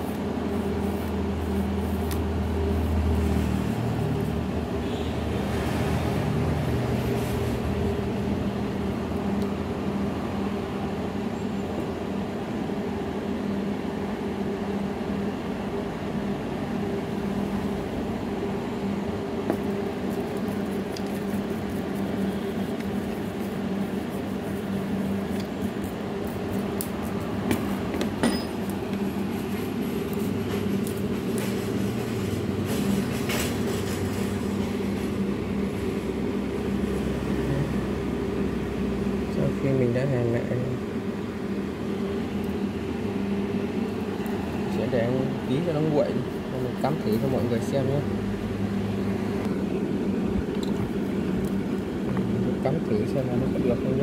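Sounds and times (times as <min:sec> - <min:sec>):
steady mechanical hum: 0:00.0 - 0:54.0.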